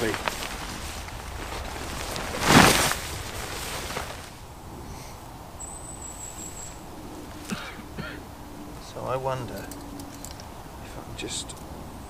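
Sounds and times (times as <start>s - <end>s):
rustling swish: 0.0s - 5.2s
soft rustling: 0.0s - 5.2s
thin high whistle: 5.6s - 9.0s.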